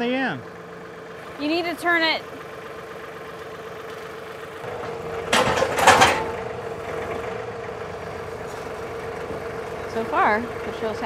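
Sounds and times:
tractor engine idling with whine: 0:00.0 - 0:11.0.

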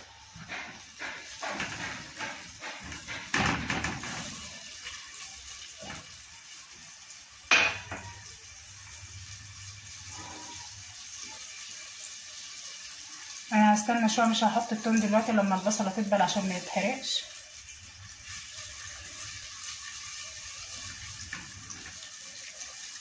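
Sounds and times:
spatula scraping onion in pot: 0:00.0 - 0:03.4, 0:09.9 - 0:11.6
knock on metal pot: 0:07.5 - 0:08.2.

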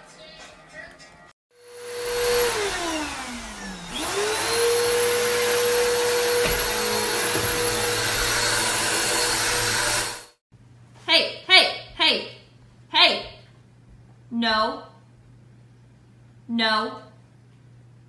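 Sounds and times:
vacuum cleaner running: 0:01.5 - 0:10.4.

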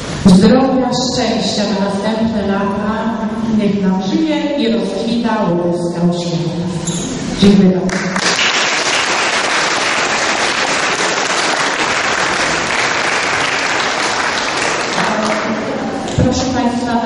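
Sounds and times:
audience clapping: 0:07.9 - 0:16.2.

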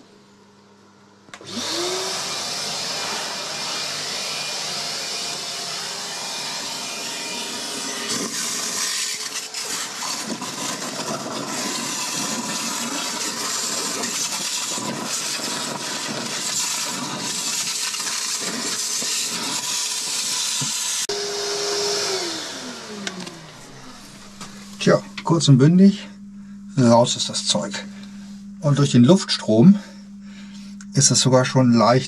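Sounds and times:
vacuum motor winding down: 0:01.3 - 0:30.2
wet vacuum sucking water: 0:01.4 - 0:25.4.

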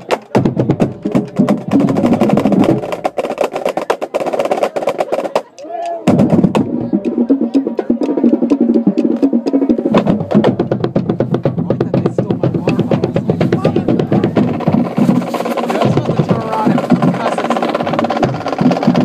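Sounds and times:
marching band drums: 0:00.0 - 0:19.0.

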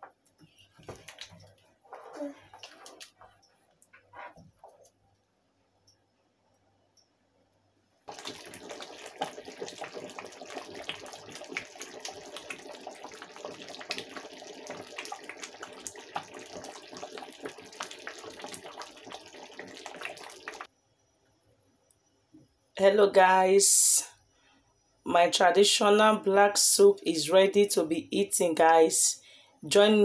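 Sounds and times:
thick soup boiling and bubbling: 0:08.1 - 0:20.7.

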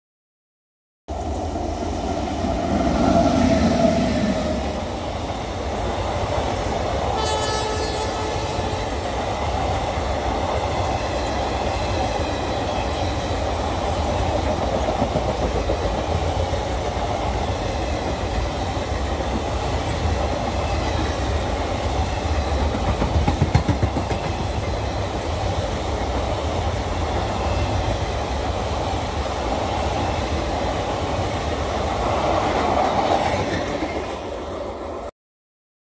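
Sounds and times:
train wheels rumbling on rails: 0:01.1 - 0:35.1
train horn blast: 0:07.1 - 0:09.0.

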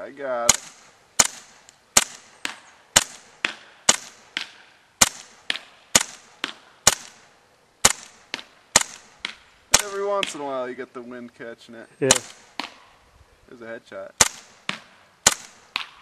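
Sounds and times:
airsoft pistol shots: 0:00.5 - 0:07.2, 0:07.8 - 0:10.4, 0:14.2 - 0:16.0.

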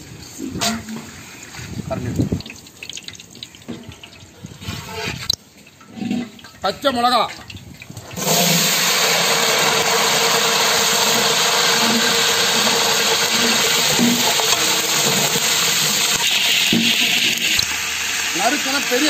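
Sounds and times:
chillies sizzling in hot oil: 0:07.6 - 0:19.0.

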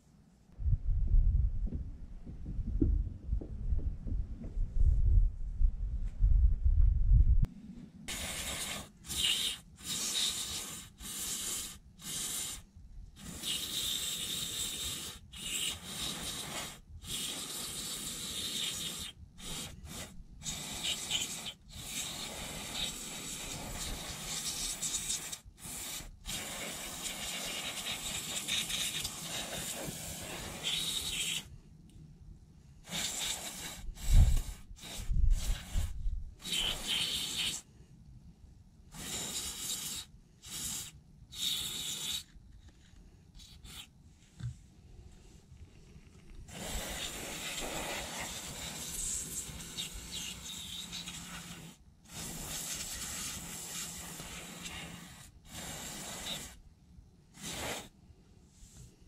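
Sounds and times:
low thump: 0:00.6 - 0:07.5
aerosol spray hissing: 0:08.1 - 0:31.5, 0:32.8 - 0:37.7, 0:38.9 - 0:42.3, 0:46.5 - 0:56.6, 0:57.4 - 0:57.9.

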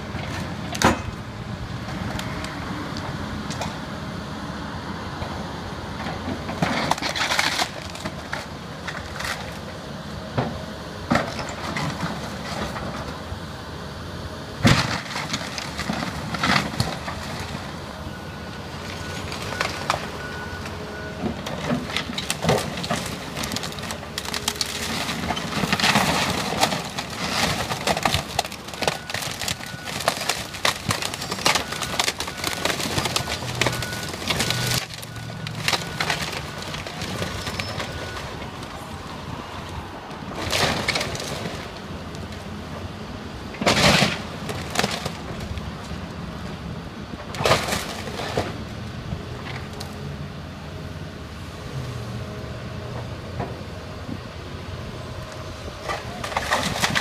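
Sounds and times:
excavator diesel engine: 0:00.0 - 0:57.0
wood cracking and splintering: 0:06.6 - 0:09.6, 0:14.6 - 0:17.7, 0:21.3 - 0:38.9, 0:40.3 - 0:42.3, 0:43.6 - 0:46.0, 0:47.3 - 0:48.6, 0:55.8 - 0:57.0
debris crashing: 0:21.3 - 0:38.8, 0:40.4 - 0:41.7, 0:43.6 - 0:45.5, 0:47.3 - 0:48.6, 0:55.8 - 0:57.0.

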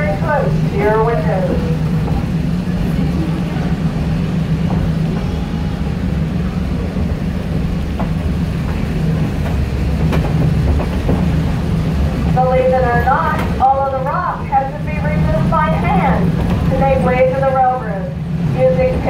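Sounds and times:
train wheels rumbling on track: 0:00.0 - 0:19.0.

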